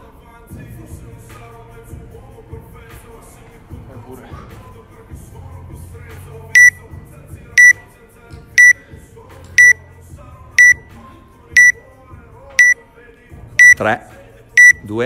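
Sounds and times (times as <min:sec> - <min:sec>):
timer beeping: 0:06.6 - 0:06.8, 0:09.6 - 0:09.8, 0:10.6 - 0:10.8, 0:11.6 - 0:11.8, 0:13.6 - 0:13.8, 0:14.6 - 0:14.9.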